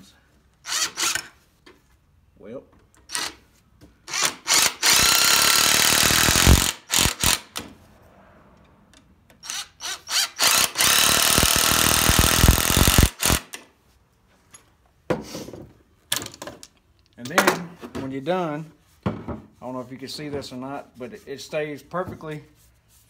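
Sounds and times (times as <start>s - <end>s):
cordless drill driving screws: 0.6s - 1.4s, 3.1s - 3.4s, 4.1s - 7.6s, 9.4s - 13.6s.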